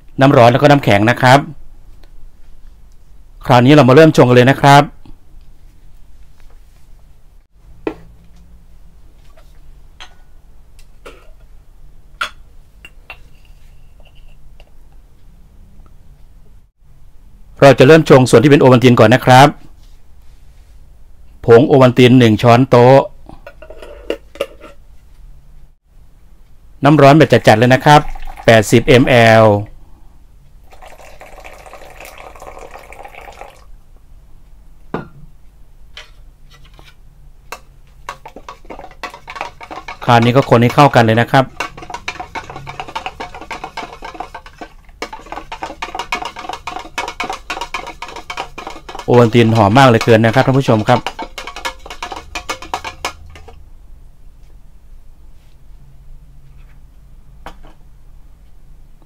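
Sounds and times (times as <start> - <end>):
water pouring into plastic jug: 27.4 - 28.7, 30.7 - 33.7.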